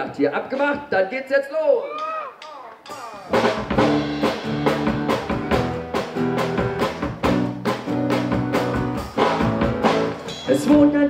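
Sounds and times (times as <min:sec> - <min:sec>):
drum kit beat: 0:02.0 - 0:11.0
acoustic bass guitar: 0:02.9 - 0:11.0.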